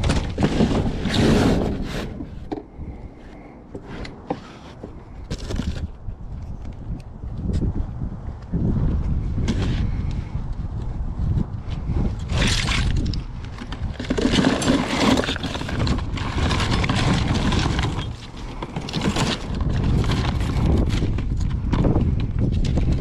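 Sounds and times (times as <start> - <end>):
objects clattering and rustling: 0.0 - 6.7, 12.2 - 23.0
rumbling background: 0.0 - 23.0.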